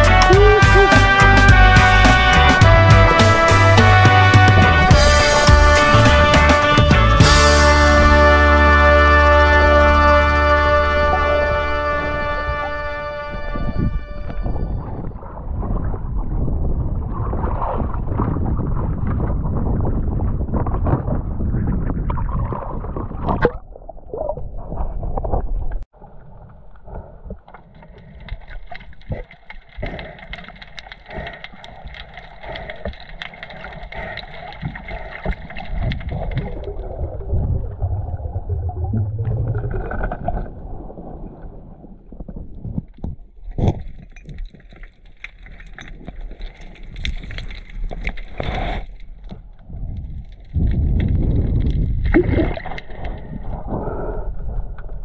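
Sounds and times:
wind: 7.5s - 55.0s
underwater clicks and crackles: 14.2s - 55.0s.

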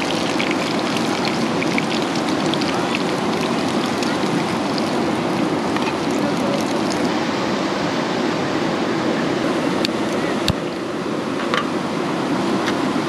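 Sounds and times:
heavy rain falling: 0.0s - 7.1s.

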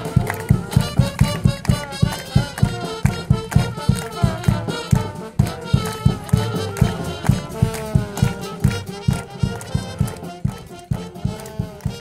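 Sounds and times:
live band music: 0.0s - 12.0s
low drum beat: 0.0s - 12.0s.

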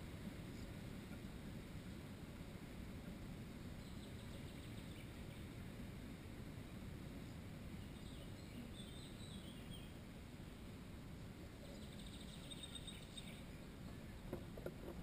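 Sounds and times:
small songbirds calling: 3.7s - 5.6s, 7.2s - 10.7s, 11.6s - 14.3s.

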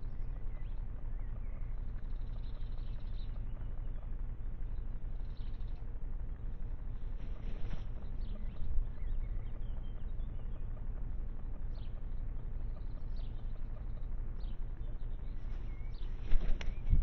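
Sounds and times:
faint bird chirps: 0.0s - 17.0s
low background rumble: 0.0s - 17.0s
crow wings flapping: 7.0s - 8.2s, 15.4s - 17.0s.

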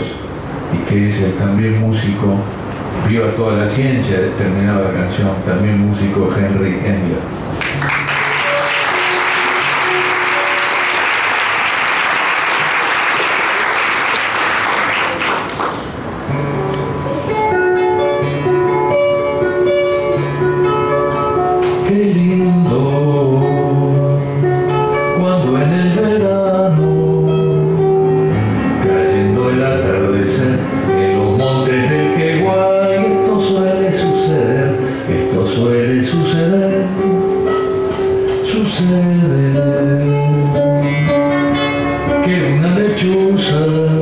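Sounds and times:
audience applauding: 7.6s - 16.0s
classical guitar playing: 8.0s - 11.0s, 16.1s - 44.0s.

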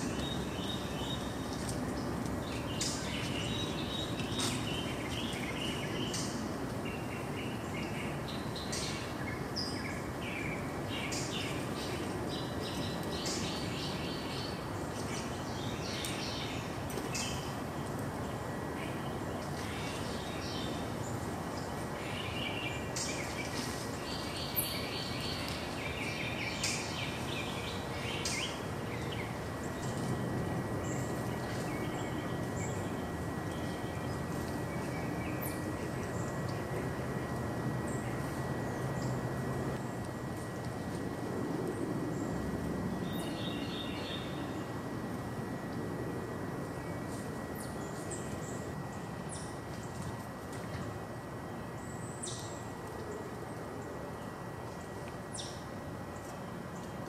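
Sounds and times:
songbirds chirping: 0.0s - 57.0s
steady rushing background noise: 0.0s - 57.0s.

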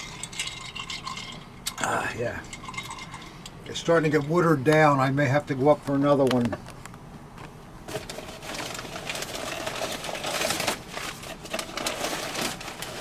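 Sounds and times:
packing paper rustling and crackling: 7.9s - 13.0s.

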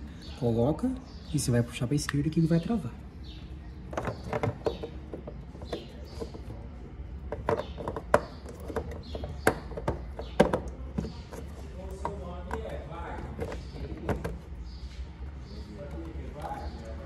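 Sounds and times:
hard plastic clicking and knocking: 3.8s - 6.6s, 7.2s - 14.6s.

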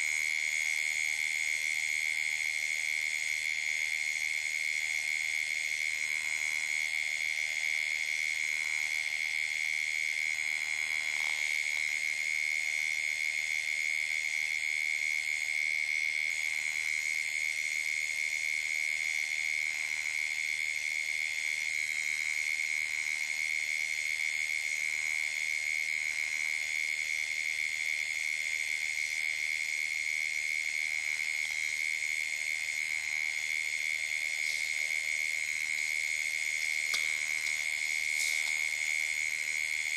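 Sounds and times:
insect trills: 18.9s - 39.9s.

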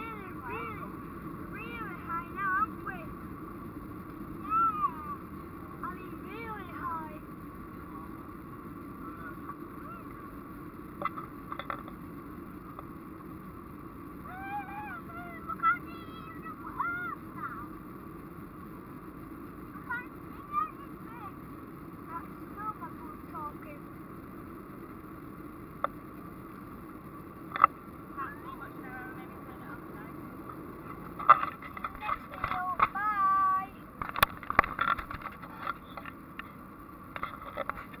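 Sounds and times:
jet engines and airflow in cabin: 0.0s - 38.0s
high drawn-out voice: 14.3s - 17.7s, 32.6s - 33.8s.

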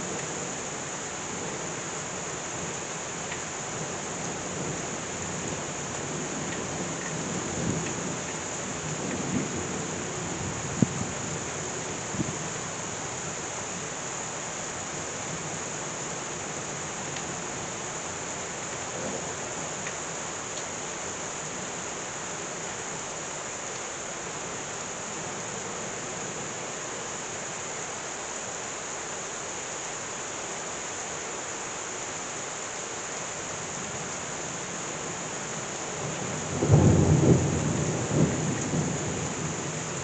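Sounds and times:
heavy rain pouring: 0.0s - 40.0s
thunder clap rumbling: 36.5s - 39.6s.

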